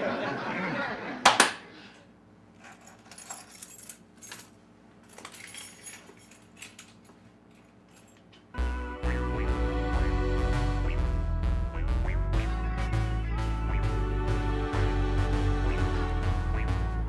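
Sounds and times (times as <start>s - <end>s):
keys jingling: 2.5s - 8.5s.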